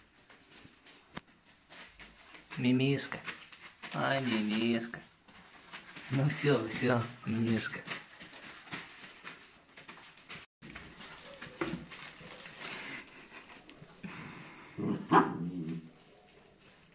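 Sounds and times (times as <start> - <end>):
puppies scuffling in wood shavings: 0.0 - 14.6, 15.6 - 16.9
puppy vocalisations: 13.6 - 15.9.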